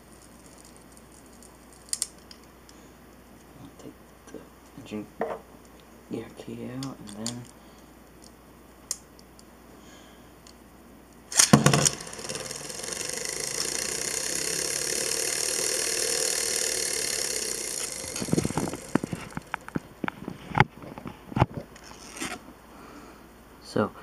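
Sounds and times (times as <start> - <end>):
spinning top clattering in plastic: 11.3 - 20.6
spinning top whirring: 11.3 - 20.8.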